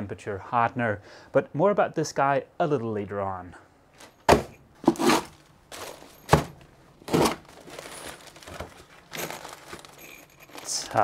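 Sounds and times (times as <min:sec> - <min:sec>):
packaging rustling and ripping: 0:04.8 - 0:11.0.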